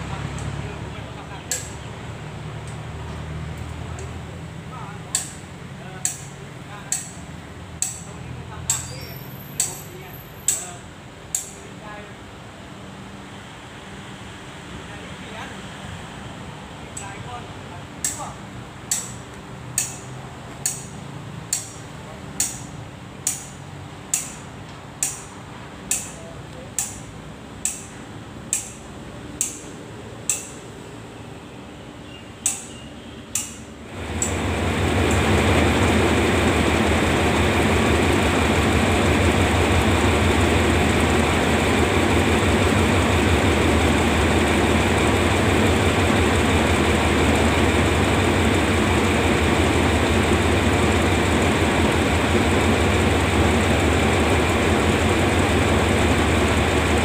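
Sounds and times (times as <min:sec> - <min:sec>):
locomotive engine rumbling: 0:00.0 - 0:11.1, 0:16.2 - 0:57.0
sharp metallic clicks: 0:01.5 - 0:01.8, 0:05.1 - 0:07.2, 0:07.8 - 0:11.7, 0:18.0 - 0:30.7, 0:32.4 - 0:35.5.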